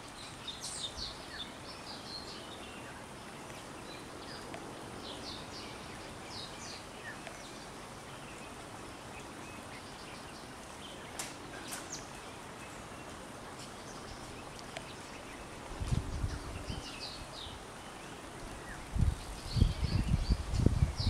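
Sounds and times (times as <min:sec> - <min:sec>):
background hiss: 0:00.0 - 0:21.0
faint sharp clicks: 0:03.4 - 0:03.6, 0:04.3 - 0:04.7, 0:07.1 - 0:07.5, 0:10.6 - 0:15.3.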